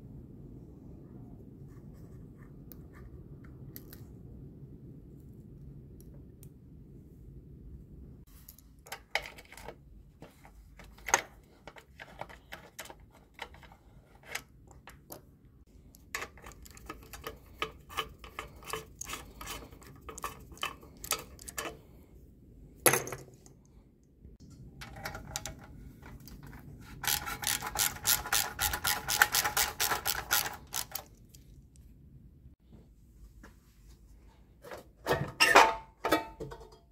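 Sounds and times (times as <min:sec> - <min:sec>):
tools and parts clinking: 0:16.0 - 0:21.8, 0:35.1 - 0:36.9
socket ratchet clicking: 0:27.0 - 0:31.1.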